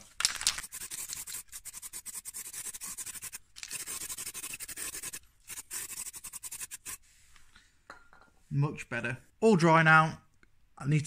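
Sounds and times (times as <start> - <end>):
paintbrush scrubbing on steel: 0.6 - 7.1.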